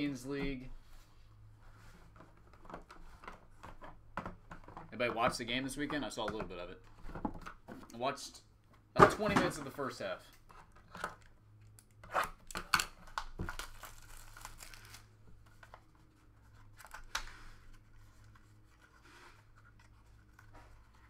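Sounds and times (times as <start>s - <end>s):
plastic wrap ripping and crinkling: 12.4s - 15.2s.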